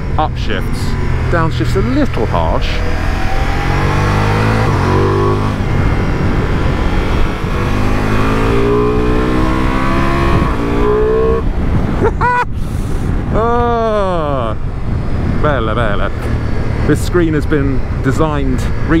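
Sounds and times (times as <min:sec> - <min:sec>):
motorcycle engine accelerating: 0:00.0 - 0:12.1
wind rush: 0:00.0 - 0:18.9.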